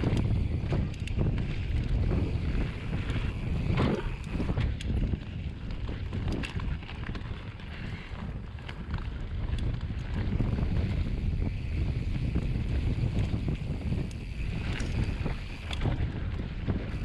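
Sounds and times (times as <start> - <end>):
tyres rolling on dirt: 0.0 - 11.6
bike clicks and rattles: 0.0 - 17.0
wind buffeting microphone: 0.0 - 17.0.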